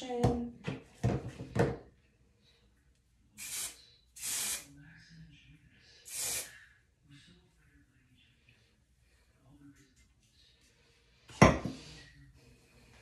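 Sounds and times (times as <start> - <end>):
hair spray hiss: 3.4 - 4.7, 6.1 - 6.5.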